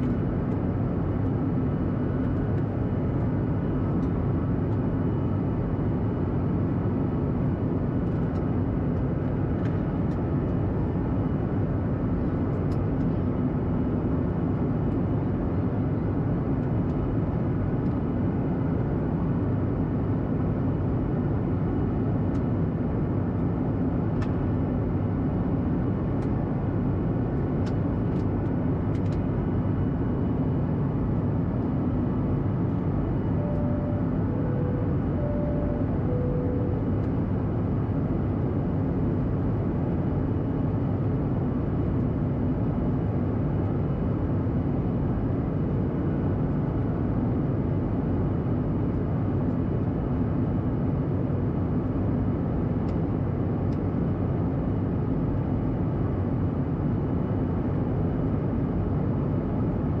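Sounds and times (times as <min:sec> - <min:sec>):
jet engines droning: 0:00.0 - 1:00.0
low hum: 0:07.5 - 0:50.0.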